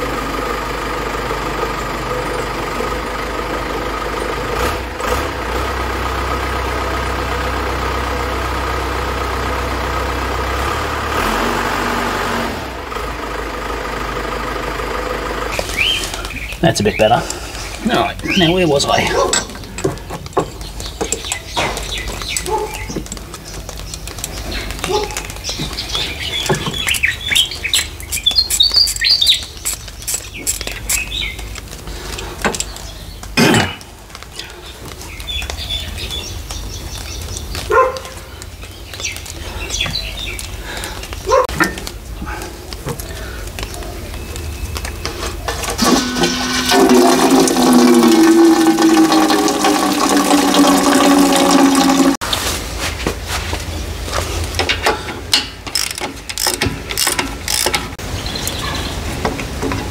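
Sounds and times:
birds chirping: 15.3 - 47.5, 53.6 - 59.9
hand tools clinking: 17.2 - 27.0, 54.6 - 58.0
loud multi-tone hum: 45.8 - 52.2.

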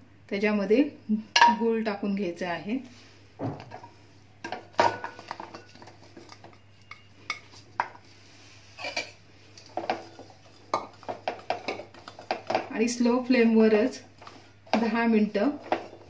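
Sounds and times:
spoon clinking and scraping: 4.9 - 7.6, 8.8 - 12.6.

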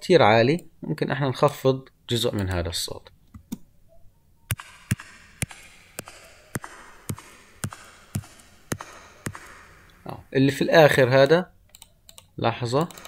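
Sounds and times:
hard-soled shoes clicking on floor: 4.6 - 10.0.

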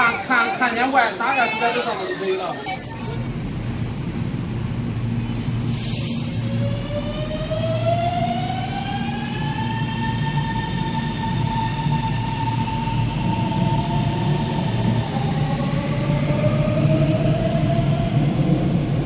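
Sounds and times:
low rumble of running train: 0.0 - 19.0.

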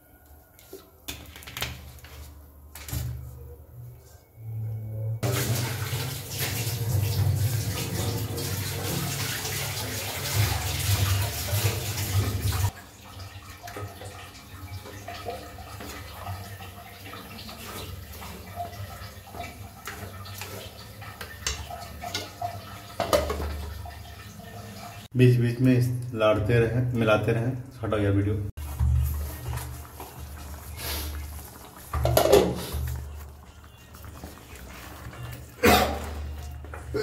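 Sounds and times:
curry stirred in a pan: 13.1 - 25.1, 28.6 - 36.9.

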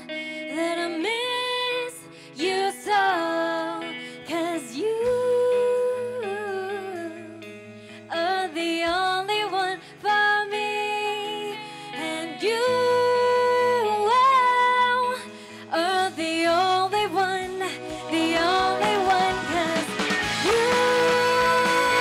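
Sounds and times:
woman singing a slow song: 0.0 - 22.0
soft band accompaniment: 12.0 - 22.0.

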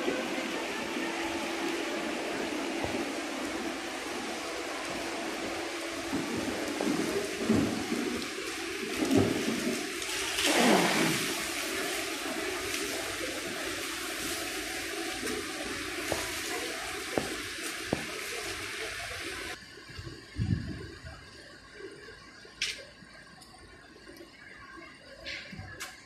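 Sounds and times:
running water rushing: 0.0 - 19.6.

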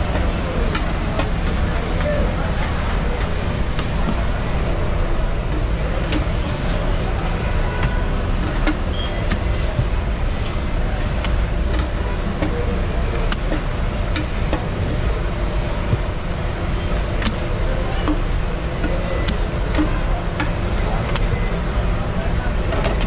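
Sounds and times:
sharp clicks and knocks: 0.0 - 21.6
low traffic rumble: 0.0 - 23.0.

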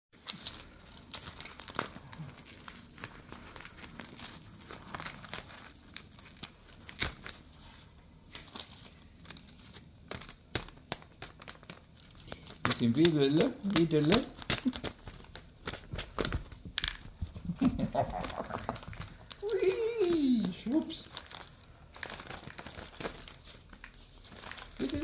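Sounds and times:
paper envelope tearing: 0.2 - 7.7, 8.3 - 16.6, 17.4 - 25.0.

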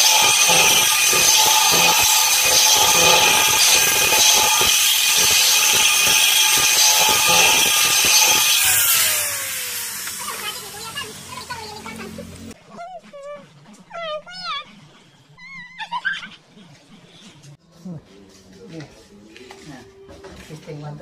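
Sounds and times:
electric drill boring into steel: 0.0 - 11.7
drill motor whining down: 0.0 - 11.9.

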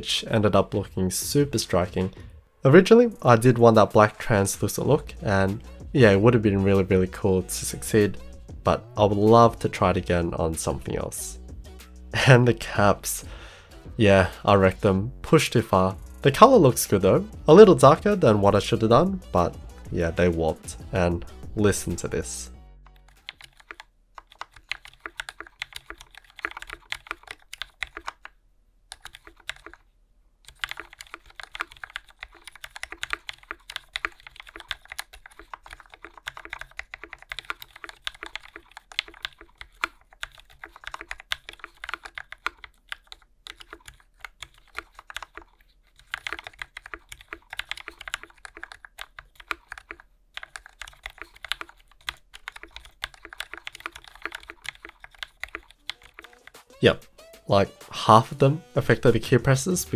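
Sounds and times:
mechanical keyboard typing: 22.9 - 29.8, 30.5 - 56.7.

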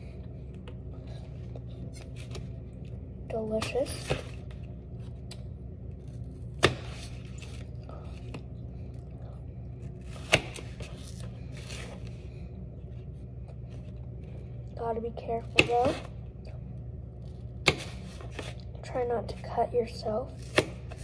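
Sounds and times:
knife cutting apple: 10.0 - 12.0, 17.6 - 18.6, 20.4 - 21.0.

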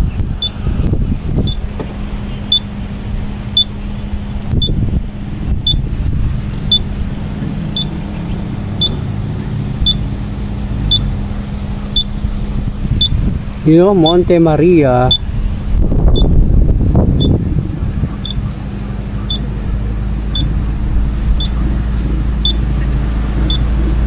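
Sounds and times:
motorcycle engine idling: 0.0 - 13.6.

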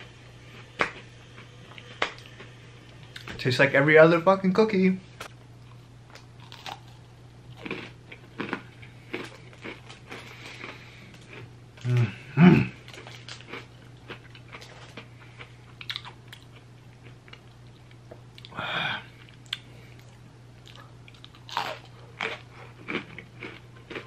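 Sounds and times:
steady low hum: 0.0 - 24.0
cookie crunching: 5.6 - 18.5, 20.6 - 24.0.

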